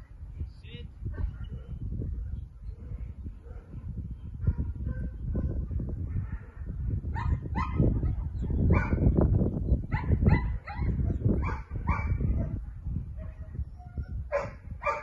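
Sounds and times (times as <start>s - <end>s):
dog barking: 2.8s - 3.8s, 4.4s - 9.1s, 9.9s - 12.6s, 14.3s - 15.0s.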